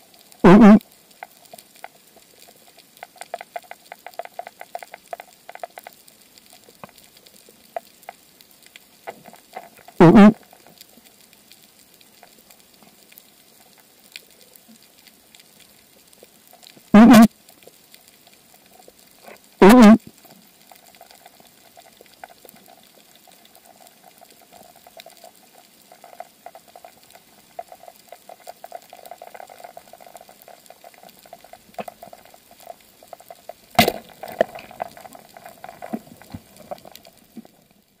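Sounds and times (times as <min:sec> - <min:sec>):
underwater crackle of clicks: 0:00.0 - 0:37.9
speargun firing crack: 0:33.8 - 0:34.4.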